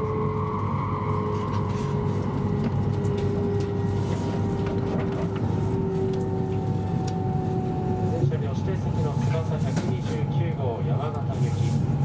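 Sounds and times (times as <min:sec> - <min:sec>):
train motor whine: 0:00.0 - 0:08.2
train cabin rumble: 0:01.4 - 0:12.0.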